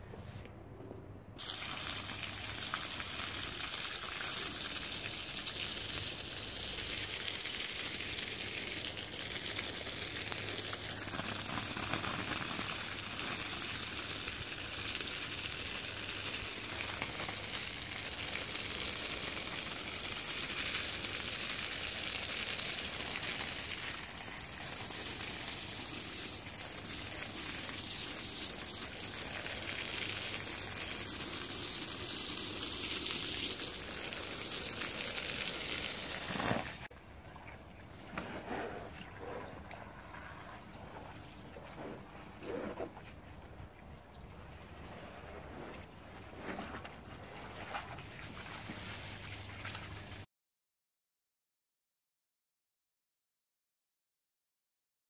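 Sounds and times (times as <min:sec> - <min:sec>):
water splashing onto rug: 0:01.4 - 0:36.9, 0:44.9 - 0:50.3.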